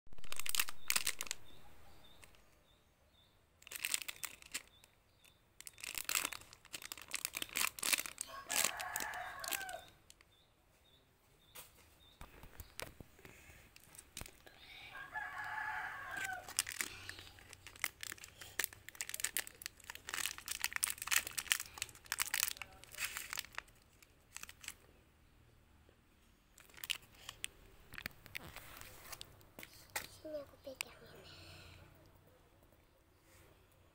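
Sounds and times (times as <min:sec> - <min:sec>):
plastic wrapper crinkling: 0:00.1 - 0:02.4, 0:03.6 - 0:10.2, 0:13.7 - 0:14.5, 0:15.1 - 0:24.9, 0:26.6 - 0:30.1
wrapper tearing open: 0:00.2 - 0:01.5, 0:03.6 - 0:04.7, 0:05.6 - 0:10.0, 0:16.1 - 0:24.8, 0:26.6 - 0:29.3
rooster crowing: 0:08.3 - 0:09.9, 0:14.9 - 0:16.6.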